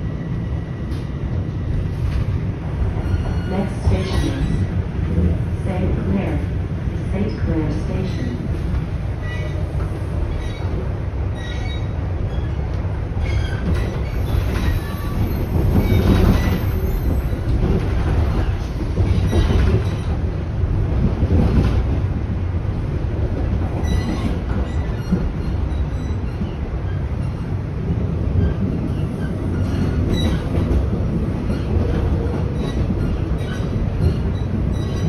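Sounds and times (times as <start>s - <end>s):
subway train rail rumble: 0.0s - 35.0s.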